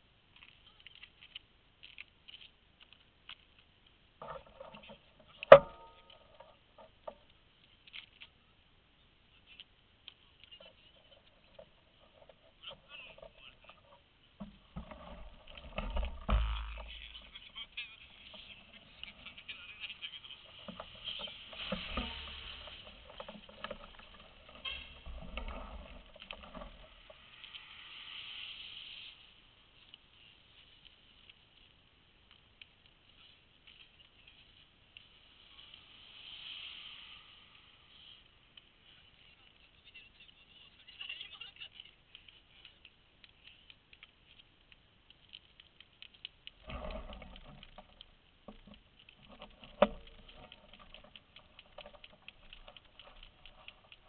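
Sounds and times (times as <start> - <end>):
light clicks and rustles: 0.3 - 8.4, 9.3 - 27.8, 29.0 - 36.0, 37.9 - 54.0
bicycle tyre hiss: 26.9 - 31.2, 33.1 - 39.4
bicycle mechanical clicks: 41.5 - 54.0.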